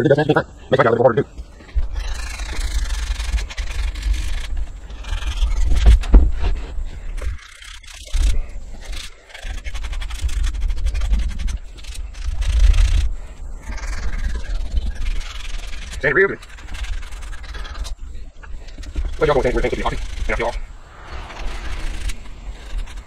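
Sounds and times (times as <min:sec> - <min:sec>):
low rumble: 0:20.0 - 0:23.0.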